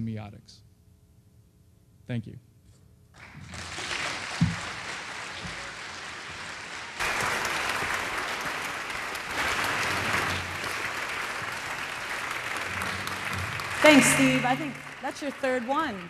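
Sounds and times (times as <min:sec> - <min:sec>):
audience applauding: 0:03.2 - 0:16.0.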